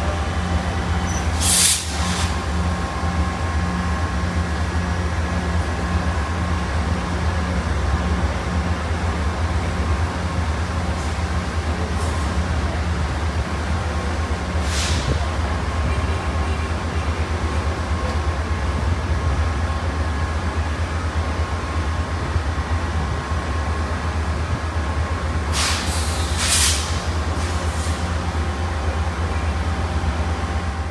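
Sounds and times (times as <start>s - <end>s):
diesel locomotive idling: 0.0s - 30.9s
air hissing: 1.3s - 2.4s, 25.5s - 28.0s.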